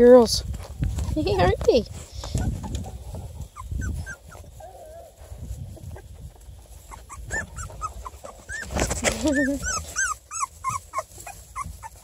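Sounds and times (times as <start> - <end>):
puppies whimpering: 2.2 - 12.0
puppy wavering cry: 6.9 - 12.0.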